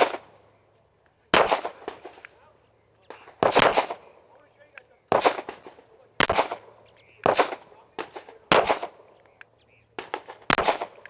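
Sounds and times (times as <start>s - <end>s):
pistol shots: 0.0s - 0.4s, 1.3s - 2.4s, 3.0s - 9.3s, 9.9s - 11.0s
faint gunshot: 1.3s - 2.2s, 3.1s - 4.1s, 5.1s - 9.0s, 10.0s - 11.0s.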